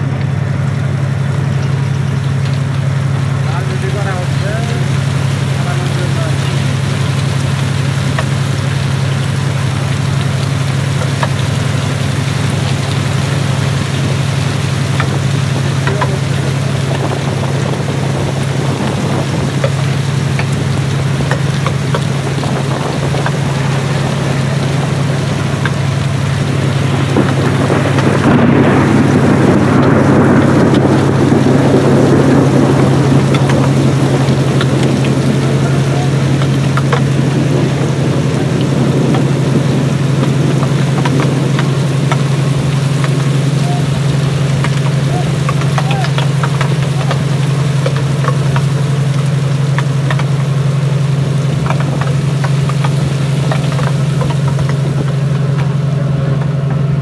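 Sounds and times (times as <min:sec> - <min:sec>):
boat engine humming: 0:00.0 - 0:57.0
rain hiss: 0:00.0 - 0:57.0
loud rushing noise: 0:22.0 - 0:44.6.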